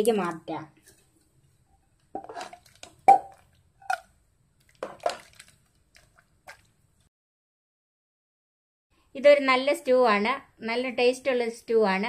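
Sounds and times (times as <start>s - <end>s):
ladle scooping stew: 0.8s - 7.1s.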